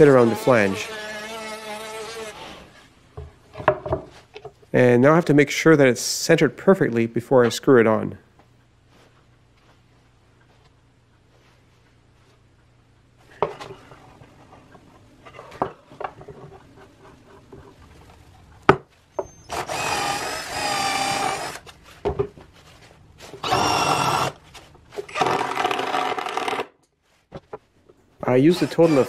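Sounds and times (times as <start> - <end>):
cordless drill running: 19.5 - 21.6, 23.4 - 24.4, 28.5 - 29.0.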